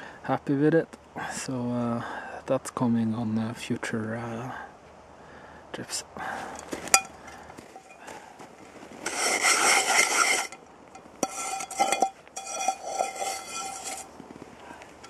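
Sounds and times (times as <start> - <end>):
frying pan scraping on snow: 6.4 - 15.0
metallic ring of pan: 6.9 - 7.2.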